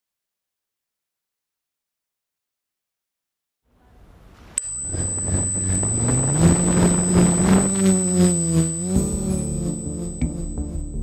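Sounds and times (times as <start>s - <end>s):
drone motors whining: 4.6s - 11.0s.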